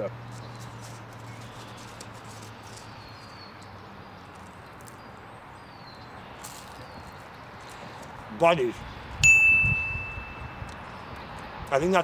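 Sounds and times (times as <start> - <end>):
high falling bird chirps: 0.3 - 8.0.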